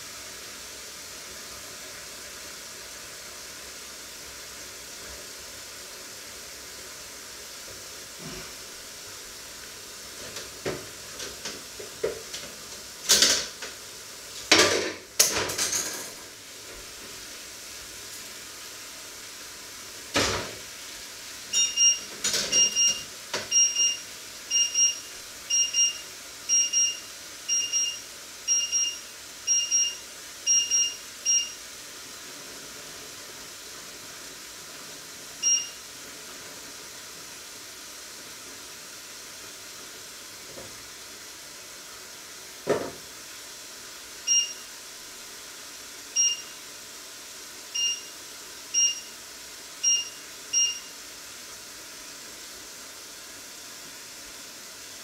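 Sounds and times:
steady hiss: 16.1s - 55.0s
appliance beeping: 21.5s - 31.7s, 35.4s - 35.9s, 44.2s - 44.8s, 46.1s - 46.6s, 47.8s - 49.2s, 49.8s - 51.0s.

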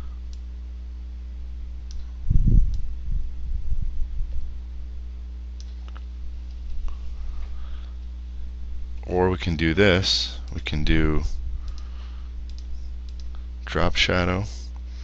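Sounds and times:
low electrical hum: 0.0s - 15.0s
computer mouse clicking: 11.6s - 11.9s, 12.5s - 13.4s.

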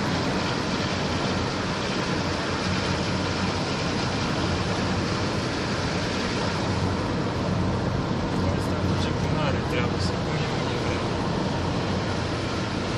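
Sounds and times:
low engine hum: 0.0s - 12.9s.

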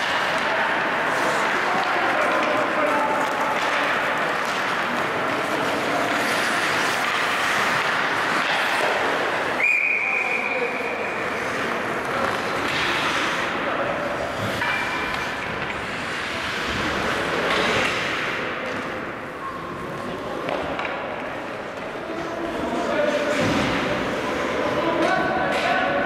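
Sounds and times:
skates and sticks on ice: 0.0s - 26.0s
referee's whistle blowing: 9.6s - 10.6s.

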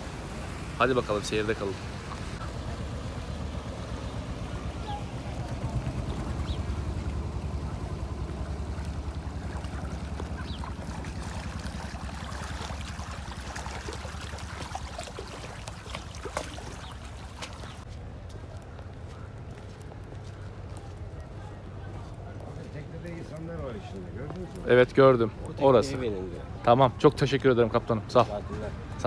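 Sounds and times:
boat engine running: 0.0s - 17.9s.

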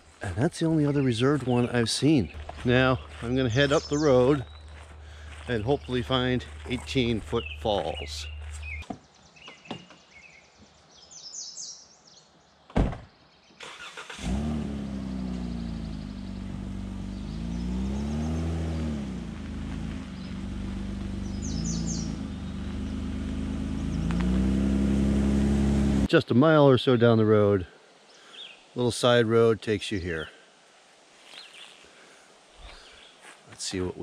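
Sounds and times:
birds chirping: 0.0s - 14.3s, 14.9s - 25.9s, 26.8s - 30.4s, 31.2s - 34.0s
van engine starting and driving: 2.3s - 8.8s, 13.6s - 26.1s
van door shutting: 12.7s - 13.1s.

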